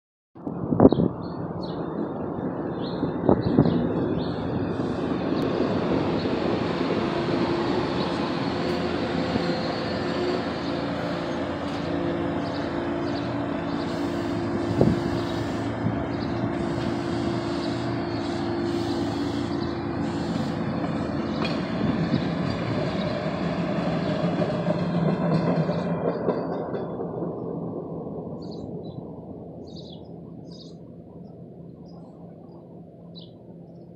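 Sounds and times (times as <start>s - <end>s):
trolley wheels on rail: 2.9s - 29.0s.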